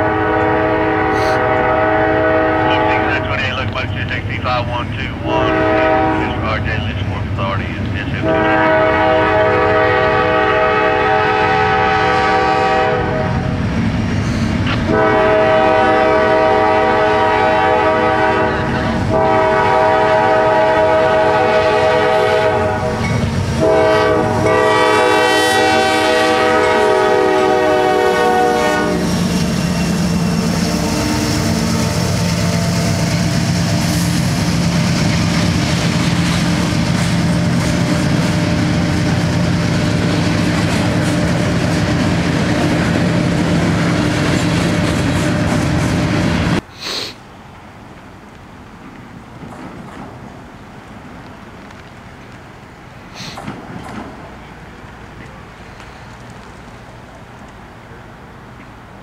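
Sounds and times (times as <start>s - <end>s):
locomotive air horn blasts: 0.0s - 3.4s, 5.2s - 6.5s, 8.2s - 13.4s, 14.9s - 33.1s
train wheels rumbling and clacking: 0.0s - 46.7s, 47.9s - 57.6s.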